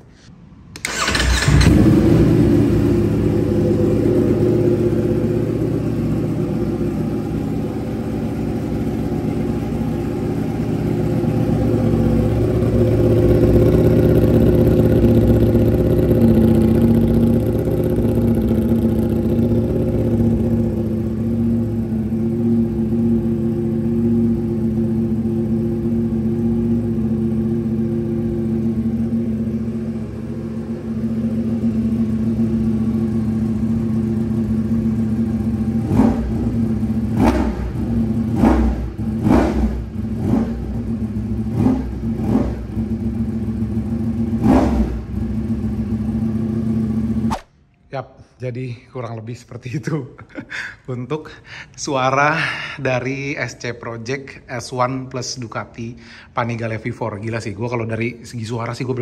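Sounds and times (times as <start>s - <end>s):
motorcycle engine idling: 0.8s - 47.3s.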